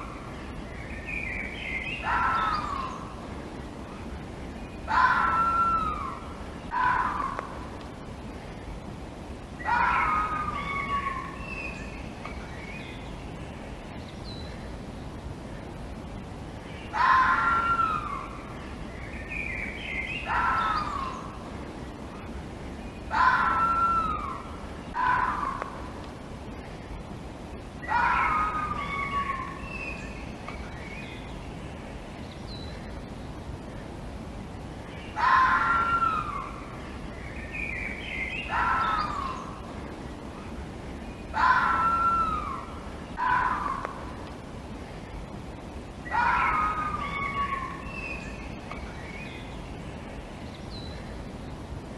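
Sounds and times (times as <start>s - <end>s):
background hiss: 0.0s - 51.9s
fox calling: 1.8s - 3.2s, 4.9s - 7.7s, 9.6s - 11.8s, 16.9s - 18.4s, 20.0s - 21.4s, 23.1s - 25.9s, 27.8s - 30.0s, 35.1s - 36.7s, 38.3s - 39.6s, 41.3s - 44.2s, 46.0s - 48.2s.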